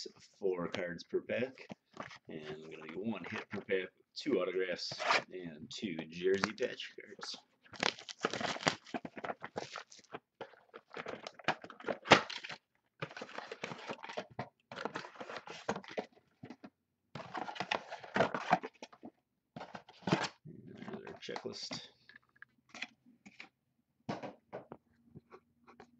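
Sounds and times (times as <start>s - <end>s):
wrapper crinkling: 7.6s - 16.0s.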